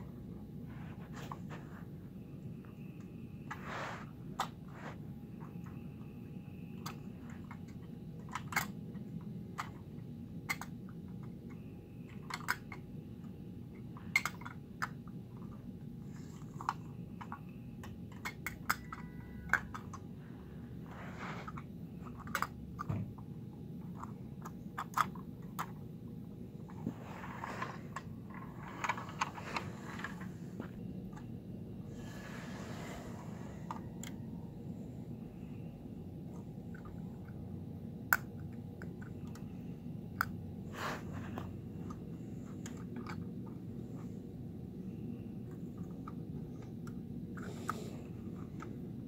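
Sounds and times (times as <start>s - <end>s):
steady low hum: 0.0s - 49.0s
toy truck clicks and taps: 6.8s - 8.8s, 10.4s - 11.3s, 12.1s - 12.8s, 14.1s - 15.0s, 18.1s - 20.0s, 22.1s - 22.9s.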